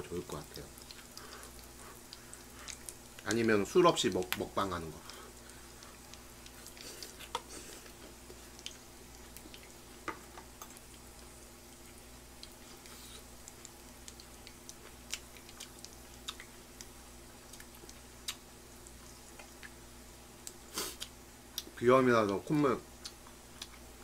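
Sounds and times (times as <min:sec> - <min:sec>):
low steady hum: 0:00.0 - 0:24.0
fat spitting and crackling: 0:00.4 - 0:03.4, 0:04.1 - 0:10.0, 0:20.4 - 0:21.8.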